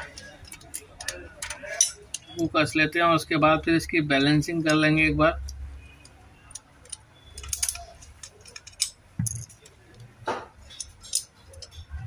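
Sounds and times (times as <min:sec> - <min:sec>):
screwdriver clicking on metal: 0:00.0 - 0:02.4, 0:10.7 - 0:11.9.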